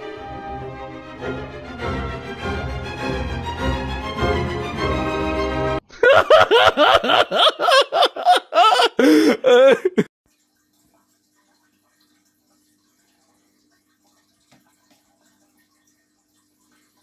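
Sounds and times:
background music: 0:00.0 - 0:05.8
person laughing: 0:05.9 - 0:10.1.

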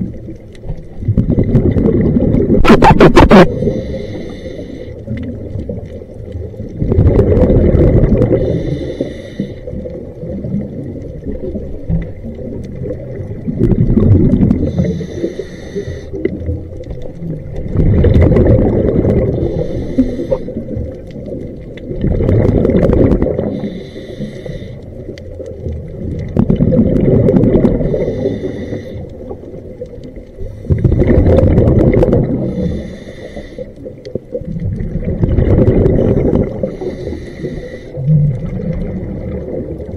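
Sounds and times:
scuba diver breathing underwater: 0:01.5 - 0:05.4, 0:06.8 - 0:10.1, 0:12.8 - 0:16.5, 0:17.6 - 0:21.0, 0:21.9 - 0:25.4, 0:26.5 - 0:29.6, 0:30.2 - 0:34.0, 0:34.9 - 0:39.9.

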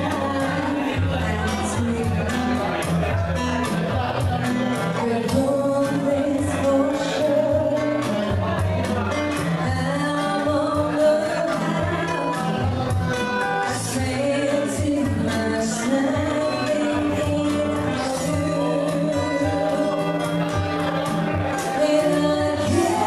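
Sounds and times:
woman singing into microphone: 0:00.0 - 0:02.8, 0:04.8 - 0:23.0
guitar: 0:00.0 - 0:23.0.

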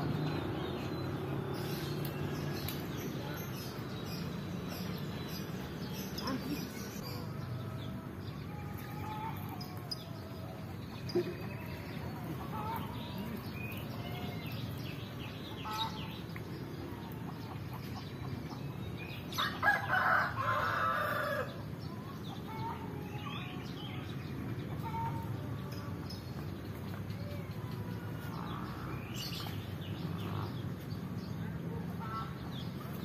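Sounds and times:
small birds chirping: 0:00.0 - 0:33.0
rooster crowing: 0:19.4 - 0:21.5.

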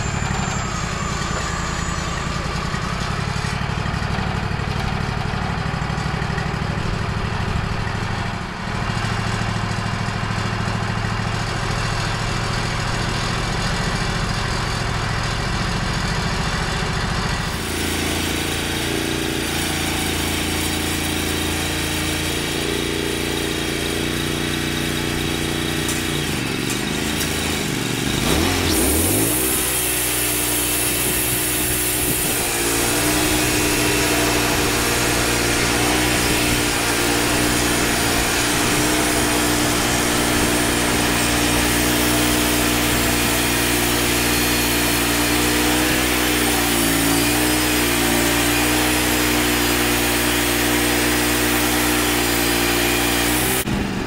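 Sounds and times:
band sawmill engine running: 0:00.0 - 0:54.0
saw cutting through log: 0:11.2 - 0:54.0.

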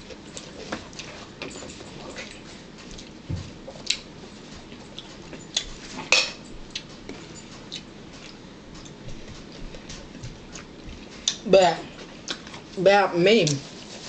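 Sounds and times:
cutlery and dishes clinking: 0:05.4 - 0:06.5.

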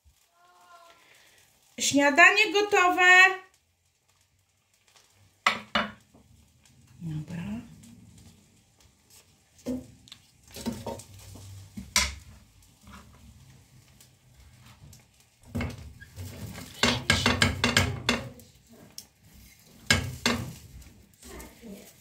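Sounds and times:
kitchen utensils and dishes clattering: 0:10.5 - 0:13.2, 0:14.7 - 0:21.0.

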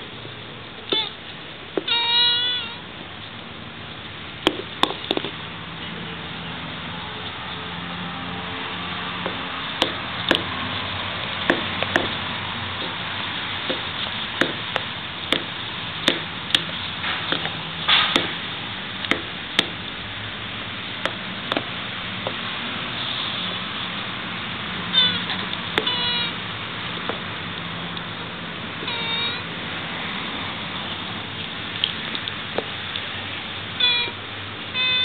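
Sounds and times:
tortoise squeaky call: 0:00.9 - 0:01.2, 0:01.8 - 0:02.9, 0:24.9 - 0:26.4, 0:28.8 - 0:29.6, 0:33.8 - 0:35.0
tortoise shells knocking: 0:04.4 - 0:05.4, 0:09.2 - 0:10.6, 0:11.4 - 0:13.0, 0:13.6 - 0:18.4.

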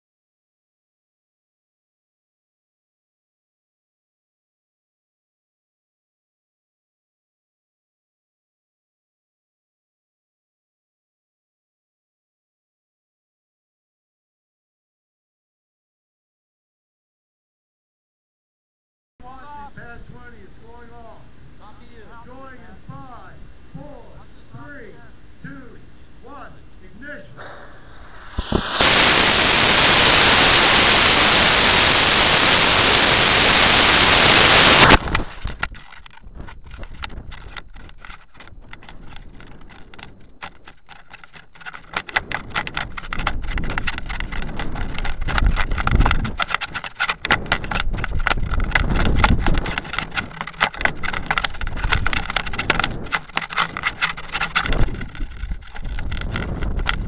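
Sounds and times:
rocket motor hissing: 0:27.4 - 0:35.5
wind buffeting microphone: 0:27.4 - 0:57.0.

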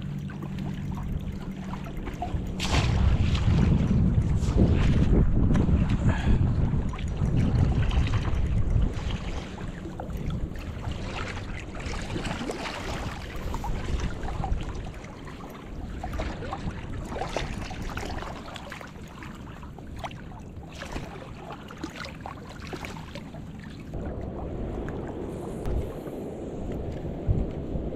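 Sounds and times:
wind buffeting microphone: 0:00.0 - 0:21.2, 0:23.9 - 0:27.9
rushing river water: 0:07.3 - 0:25.9.

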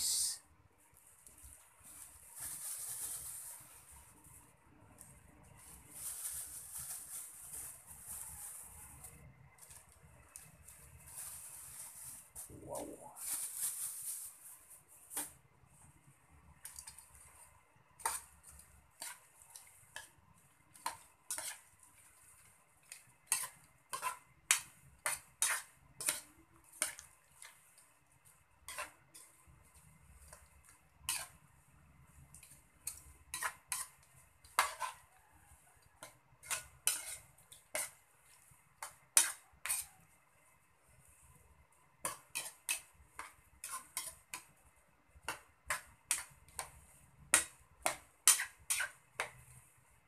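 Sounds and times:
metal spoon scraping a wok: 0:16.6 - 0:31.6, 0:32.2 - 0:40.1, 0:42.0 - 0:44.5, 0:45.2 - 0:49.6.

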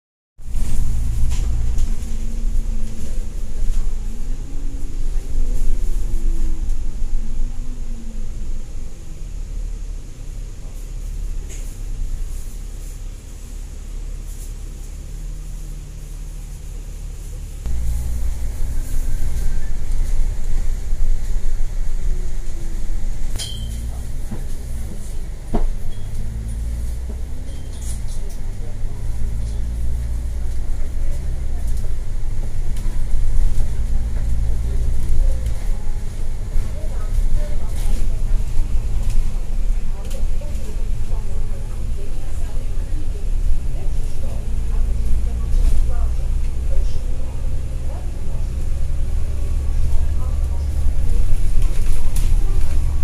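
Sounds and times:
bus engine rumble and whine: 0:00.4 - 0:53.0.

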